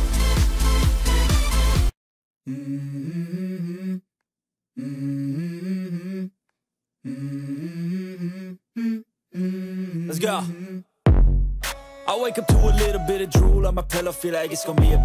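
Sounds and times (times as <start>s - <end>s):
person humming a slow melody: 2.4s - 4.1s, 4.8s - 6.4s, 7.0s - 10.9s.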